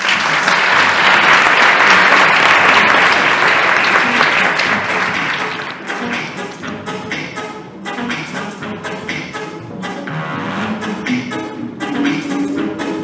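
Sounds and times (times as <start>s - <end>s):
audience applauding: 0.0s - 6.4s
music: 0.0s - 13.0s.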